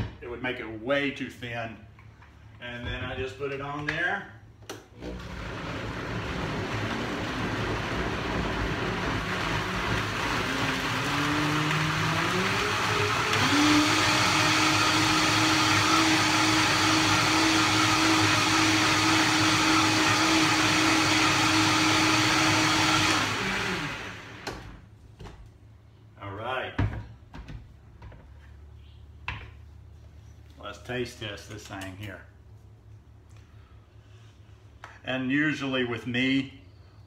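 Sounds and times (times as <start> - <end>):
blender motor running: 5.0 - 24.8.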